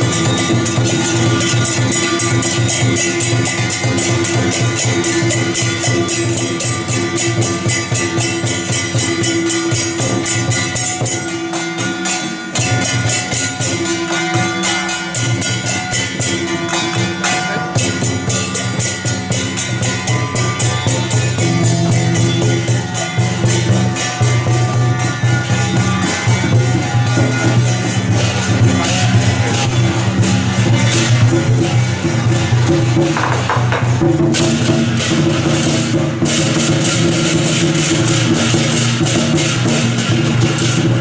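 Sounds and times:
steady gong ringing: 0.0 - 38.4
hand gongs and cymbals beaten: 0.0 - 41.0.

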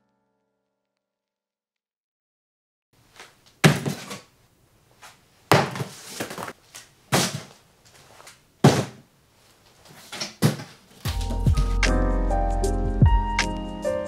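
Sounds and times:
cardboard flaps thudding: 3.6 - 4.3, 5.5 - 7.6, 8.6 - 9.0, 10.0 - 11.7
cardboard scraping rustle: 3.6 - 4.3, 5.5 - 9.0.

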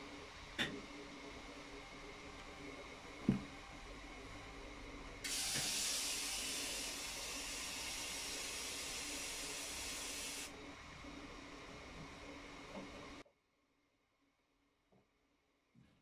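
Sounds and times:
steady hiss: 5.2 - 13.2.

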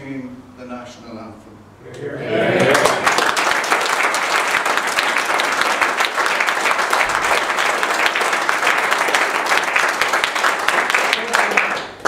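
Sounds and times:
audience applauding: 2.5 - 12.0.

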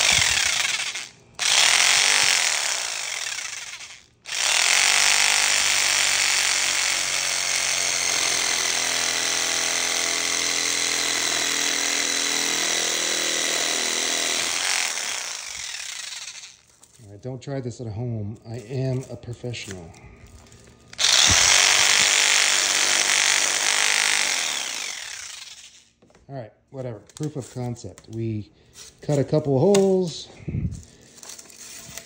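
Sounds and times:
air saw cutting plastic: 0.0 - 16.7, 21.0 - 25.9.

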